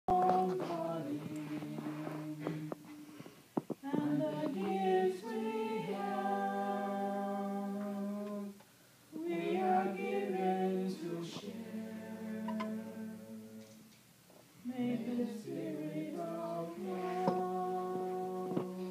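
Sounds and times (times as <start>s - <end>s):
person singing long held notes: 0.1s - 3.1s, 3.8s - 8.6s, 14.7s - 18.9s.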